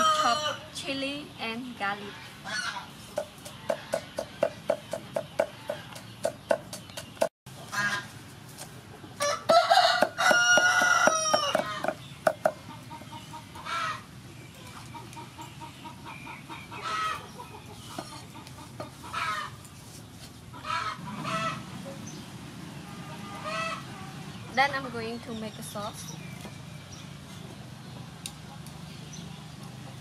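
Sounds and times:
rooster crowing: 0.0 - 0.7, 9.2 - 11.9
chickens clucking: 1.9 - 26.6, 27.2 - 30.0.

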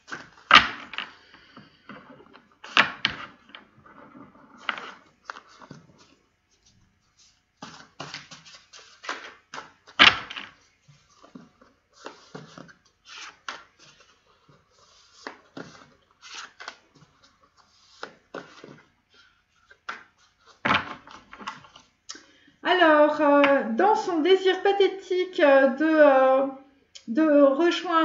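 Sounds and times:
cards being shuffled: 2.6 - 18.9.

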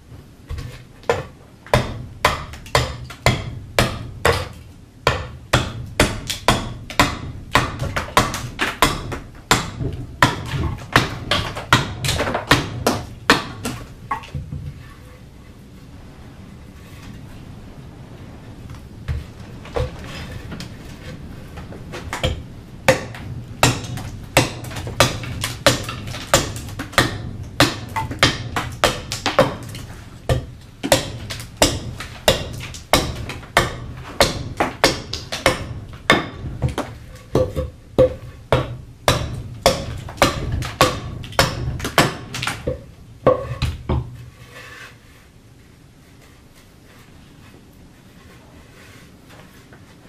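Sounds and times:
axe chopping wood: 0.5 - 14.6, 22.1 - 44.1.

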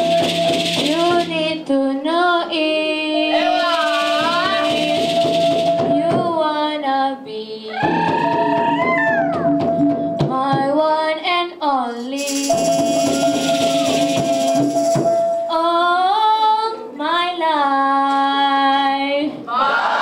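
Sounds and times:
rattling percussion: 0.0 - 2.0, 3.1 - 6.7, 7.8 - 10.9, 12.0 - 15.8
woman singing into microphone: 0.8 - 9.2, 10.2 - 19.5.

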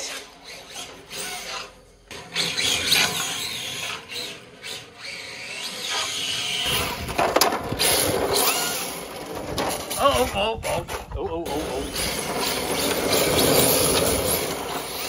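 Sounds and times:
rc car motor whining: 0.0 - 10.0, 11.5 - 15.0
tyres on block paving: 0.0 - 15.0.

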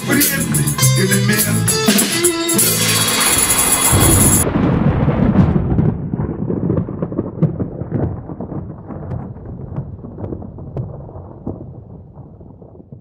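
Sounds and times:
music: 0.0 - 4.4
crackles: 3.0 - 13.0
deep thunder rumble: 3.3 - 13.0.

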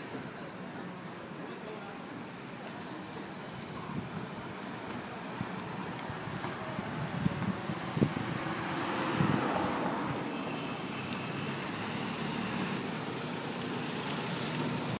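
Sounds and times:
wind buffeting the microphone: 3.5 - 10.3.

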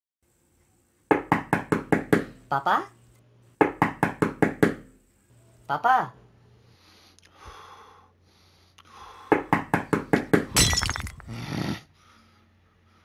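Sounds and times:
glass breaking: 10.5 - 11.3.

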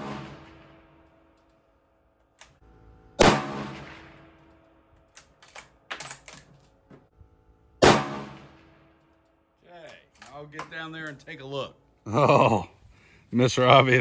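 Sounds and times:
rifle shots: 0.0 - 1.0, 3.2 - 4.4, 7.8 - 8.9.

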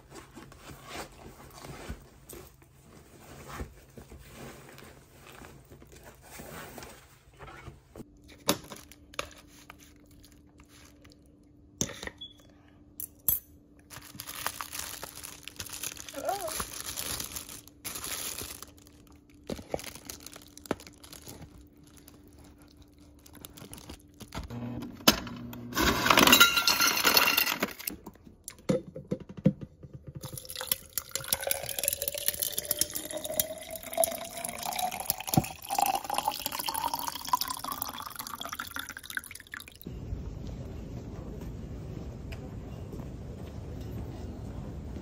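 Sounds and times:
low steady hum: 30.0 - 45.0
water pouring into metal pot: 30.2 - 39.8.

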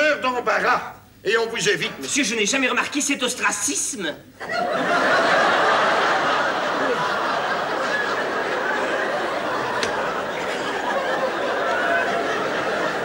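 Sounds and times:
audience laughing: 4.4 - 13.0.

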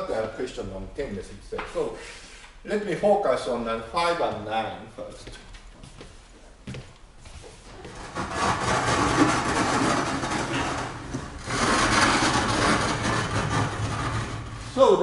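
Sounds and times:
sliding panels rumbling on tracks: 8.0 - 14.7.

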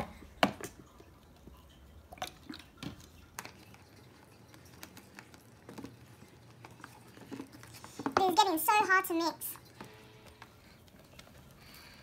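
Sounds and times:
spoon stirring sticky slime: 0.0 - 8.9.

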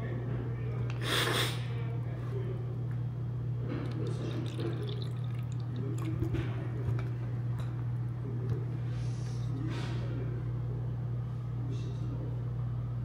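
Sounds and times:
steady low hum: 0.0 - 13.0
faint liquid eating sounds: 0.5 - 1.7, 3.6 - 10.2.

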